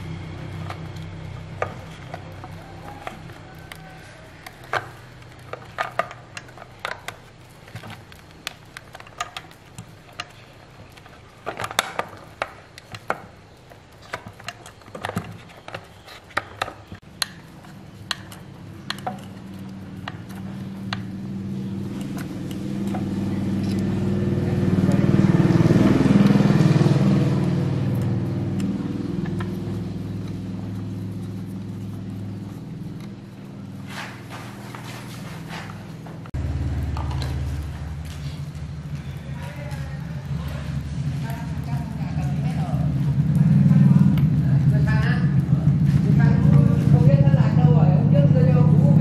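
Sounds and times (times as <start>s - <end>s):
low engine hum: 0.0s - 6.8s, 16.9s - 49.0s
plastic parts clicking and tapping: 0.2s - 23.9s.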